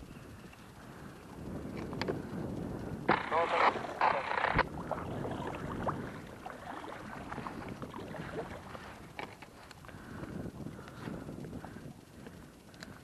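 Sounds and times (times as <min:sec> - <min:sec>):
small ticks: 0:00.0 - 0:03.0, 0:08.7 - 0:13.0
water lapping against kayak: 0:00.4 - 0:13.0.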